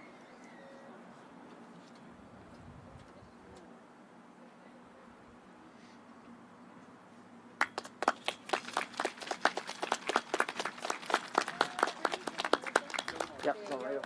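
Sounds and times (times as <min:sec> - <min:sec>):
people clapping: 0:07.6 - 0:14.0.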